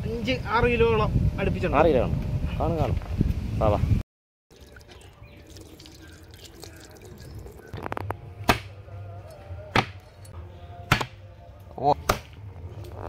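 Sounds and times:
hose water trickling: 0:04.5 - 0:07.8
cleaver chopping fish: 0:08.5 - 0:08.8, 0:09.7 - 0:10.0, 0:10.9 - 0:11.2, 0:12.0 - 0:12.3.

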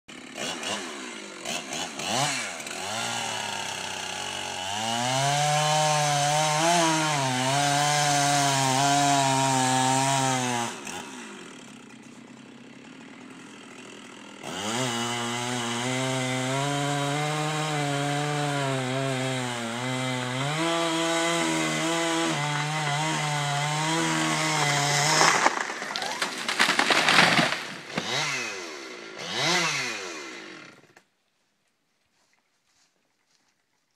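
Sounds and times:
chainsaw cutting wood: 0:00.1 - 0:31.1
tree cracking and crashing: 0:23.7 - 0:28.4.

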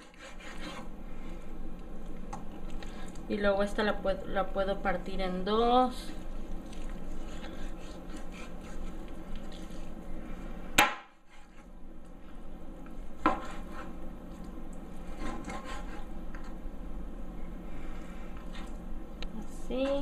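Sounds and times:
low steady hum: 0:00.0 - 0:20.0
knife tapping and scraping board: 0:13.2 - 0:13.9.

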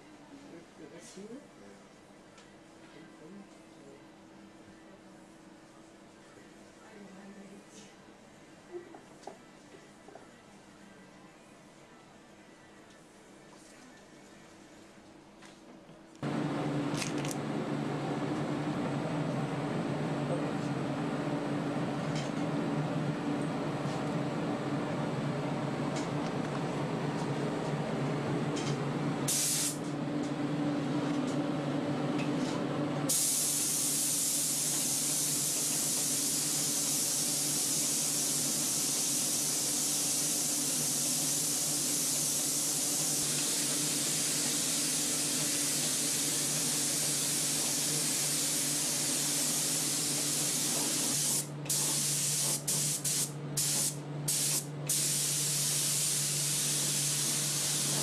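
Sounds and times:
spray gun hissing: 0:29.3 - 0:29.8, 0:33.1 - 0:58.0.

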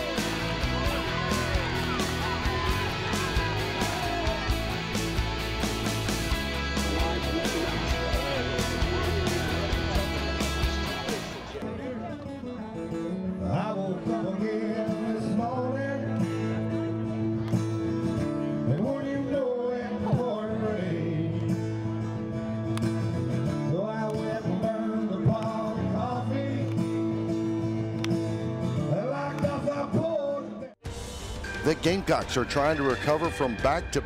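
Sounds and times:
steady bass: 0:00.0 - 0:11.6
guitar chords: 0:00.0 - 0:29.9
person singing country song: 0:00.0 - 0:30.7.

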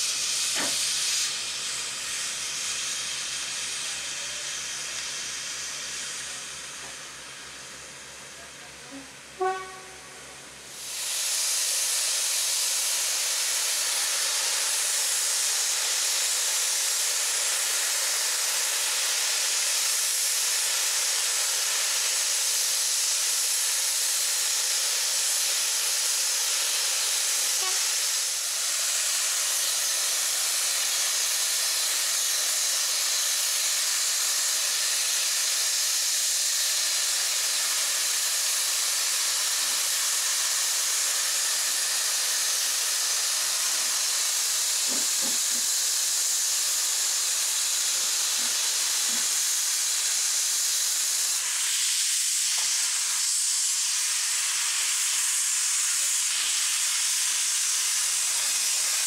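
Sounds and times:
steam locomotive hissing steam: 0:00.0 - 0:59.0
locomotive whistle toot: 0:09.4 - 0:10.2, 0:27.6 - 0:27.9.

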